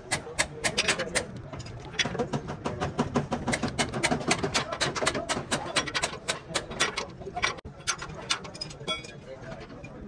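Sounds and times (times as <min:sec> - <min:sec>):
hammering on metal: 0:02.1 - 0:06.9.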